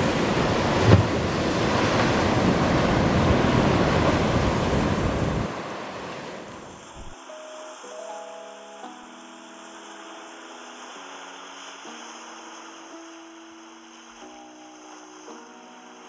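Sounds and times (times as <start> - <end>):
wind on microphone: 0.0 - 7.2
sea surf breaking: 0.0 - 16.0
low thump: 7.0 - 7.2.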